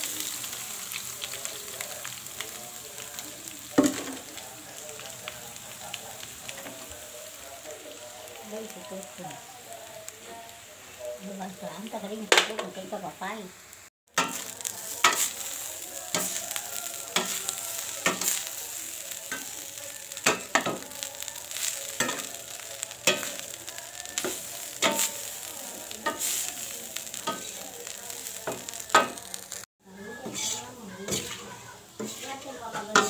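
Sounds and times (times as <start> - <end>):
hot pan hissing: 0.0 - 33.0
metal spatula scraping wok: 14.2 - 20.8, 30.1 - 33.0.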